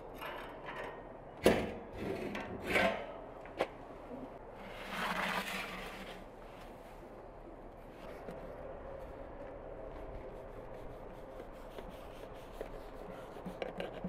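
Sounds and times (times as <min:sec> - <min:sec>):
metal tray scraping on brick: 0:04.6 - 0:06.2.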